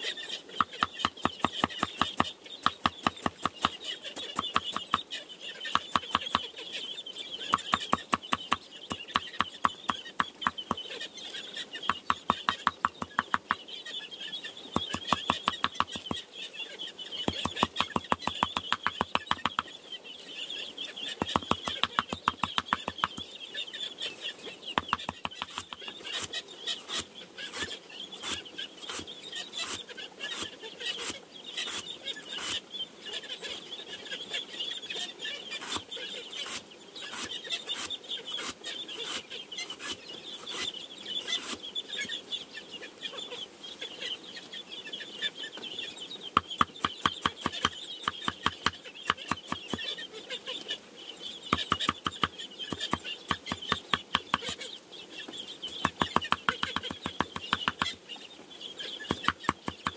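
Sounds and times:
chickens clucking and chirping: 0:00.0 - 0:59.9
sharp strokes on bamboo: 0:24.8 - 0:32.6, 0:35.6 - 0:41.6.

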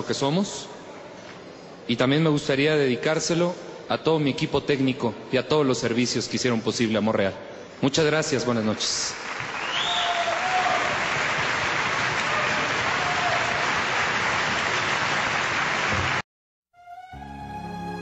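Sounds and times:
large audience applauding: 0:08.5 - 0:16.2
slow soft music: 0:16.8 - 0:18.0.

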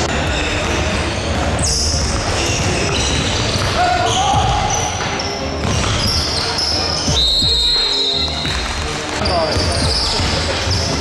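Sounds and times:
sneakers squeaking: 0:00.0 - 0:11.0
basketball dribbling on wooden court: 0:00.2 - 0:11.0
players calling out: 0:01.2 - 0:05.4.

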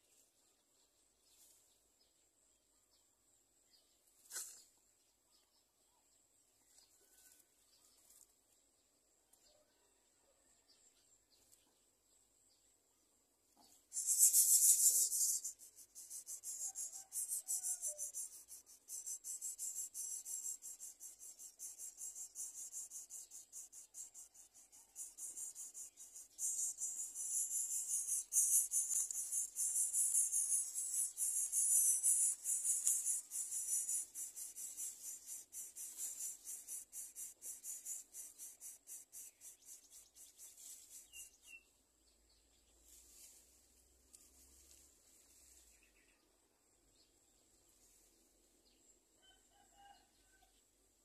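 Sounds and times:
nestlings begging with rasping calls: 0:13.9 - 0:41.3.

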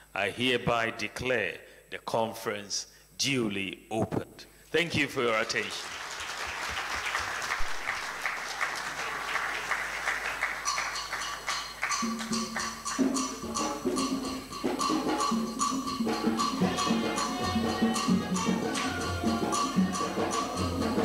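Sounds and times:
audience applause: 0:05.3 - 0:12.8
music with percussion and beat: 0:10.0 - 0:21.0.

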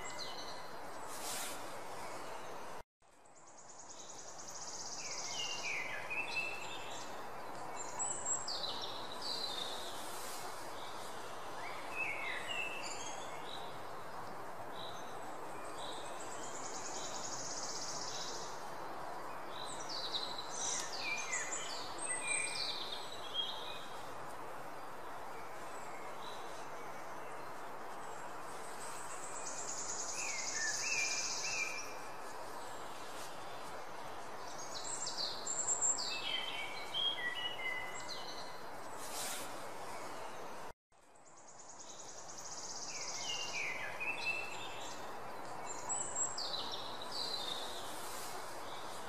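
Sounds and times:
birds chirping and trilling: 0:00.0 - 0:24.0, 0:25.3 - 0:39.2.

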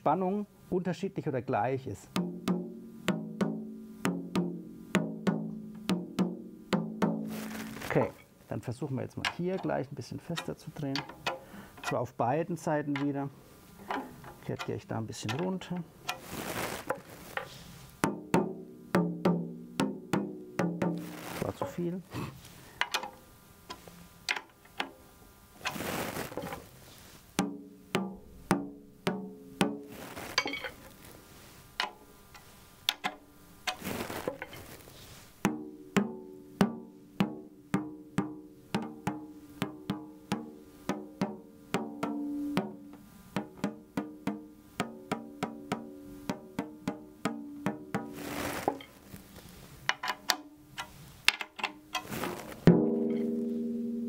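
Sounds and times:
drumstick tapping tom-tom: 0:02.1 - 0:08.2, 0:09.1 - 0:12.1, 0:12.8 - 0:21.9, 0:27.4 - 0:31.0, 0:31.8 - 0:34.7, 0:35.4 - 0:49.2, 0:49.8 - 0:54.0.

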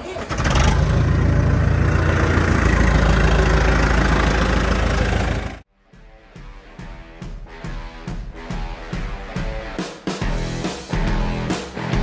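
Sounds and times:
large engine starting and idling: 0:00.0 - 0:05.7.

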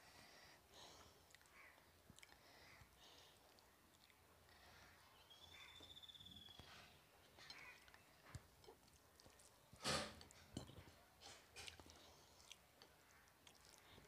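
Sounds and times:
chewing and wet mouth noises: 0:00.9 - 0:05.2, 0:07.3 - 0:14.0.

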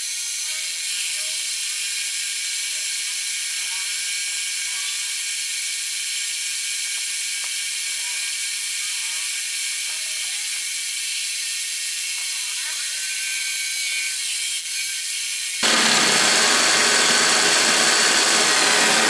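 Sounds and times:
milling machine cutting metal: 0:15.6 - 0:19.0.

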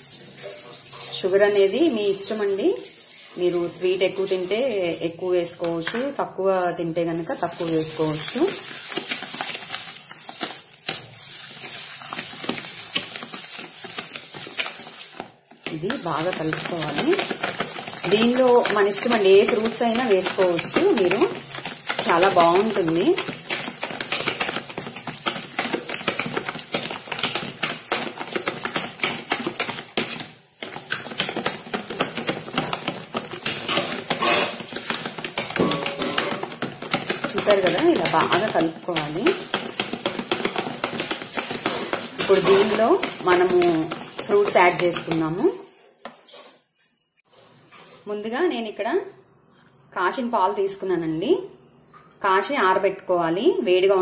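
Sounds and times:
spoon stirring in a bowl: 0:00.2 - 0:46.6
spoon scraping a bowl: 0:27.9 - 0:45.2
spoon knocking against bowl: 0:35.4 - 0:38.6.

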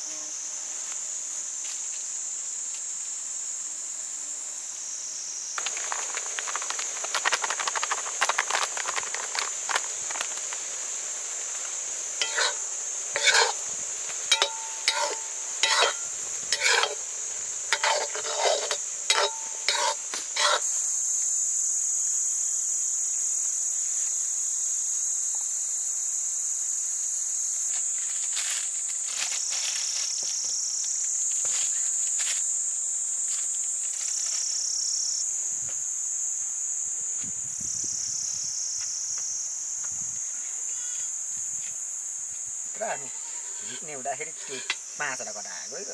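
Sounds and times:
insects chirping: 0:00.0 - 0:45.9
metallic clinks and scrapes: 0:12.2 - 0:12.6, 0:13.2 - 0:13.6, 0:14.3 - 0:17.0, 0:17.8 - 0:20.6.

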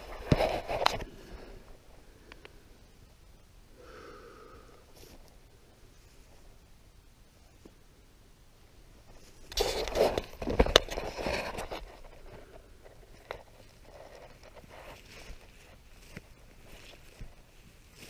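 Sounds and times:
camera handling rustling in grass: 0:00.0 - 0:01.2, 0:09.0 - 0:18.0.

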